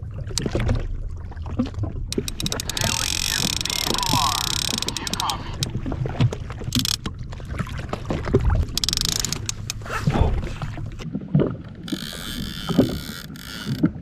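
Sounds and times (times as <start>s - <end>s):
water slapping against hull: 0.0s - 14.0s
hissy water noise: 2.2s - 7.0s.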